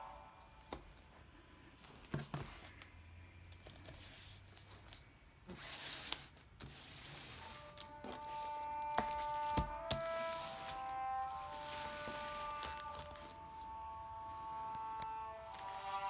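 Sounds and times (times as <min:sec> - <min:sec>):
books sliding on table: 0:05.5 - 0:13.4.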